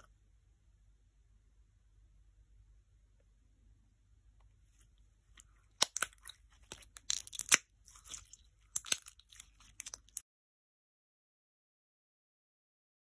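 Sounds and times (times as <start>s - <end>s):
slime squeezed crackling and popping: 5.4s - 10.2s.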